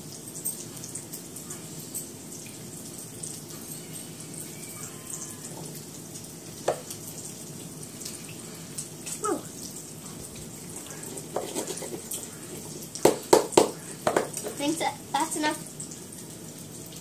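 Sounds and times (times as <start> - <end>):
bacon sizzling in a frying pan: 0.0 - 17.0
short falling squeaks: 3.8 - 5.6.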